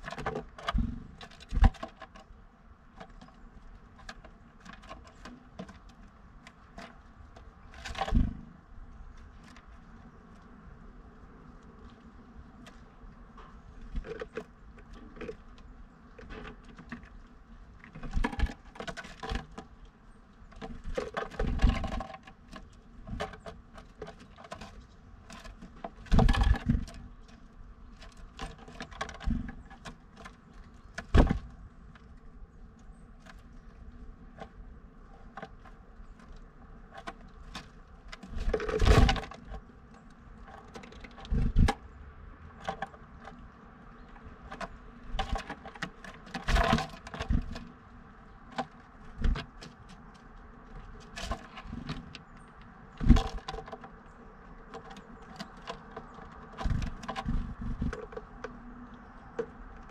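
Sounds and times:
bird pecking taps and scratches: 11.6s - 41.8s, 42.6s - 59.9s.

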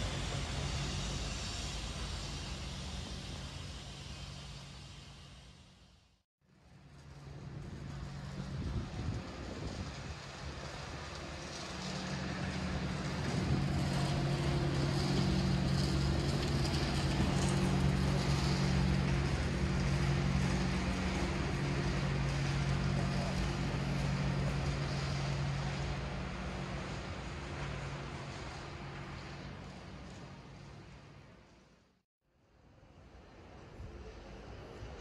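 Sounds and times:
vehicle engine humming: 0.0s - 6.0s, 6.9s - 31.7s.

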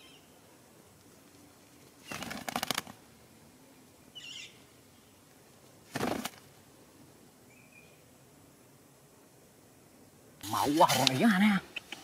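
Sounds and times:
parakeet wings flapping: 2.0s - 3.0s, 5.9s - 6.5s.

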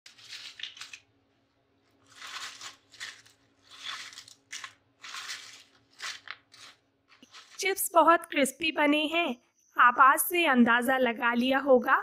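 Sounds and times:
chips crackling and crunching: 0.1s - 1.2s, 1.8s - 7.6s.

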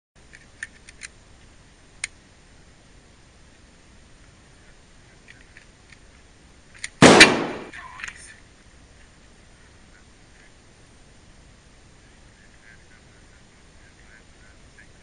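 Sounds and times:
shotgun blast: 7.0s - 7.7s.

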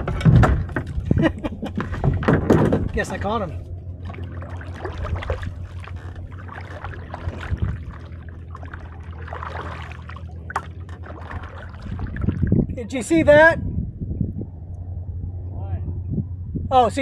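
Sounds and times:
steady low rumble: 0.0s - 17.0s
kayak paddle splashing water: 3.8s - 12.7s.

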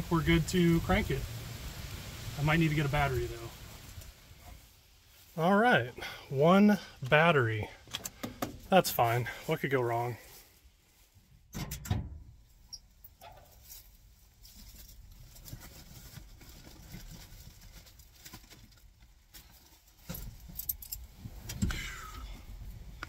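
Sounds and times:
rustling: 0.0s - 5.9s, 6.8s - 11.5s, 12.3s - 23.0s
clicks and knocks in truck cab: 7.9s - 8.6s.

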